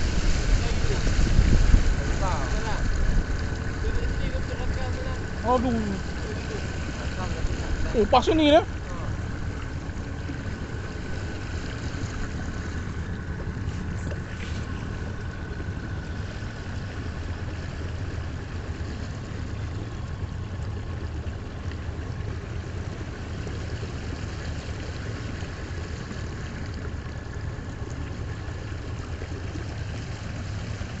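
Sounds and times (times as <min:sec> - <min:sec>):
wind noise: 0:00.0 - 0:04.4
motorboat engine droning: 0:00.0 - 0:31.0
water noise: 0:00.0 - 0:31.0.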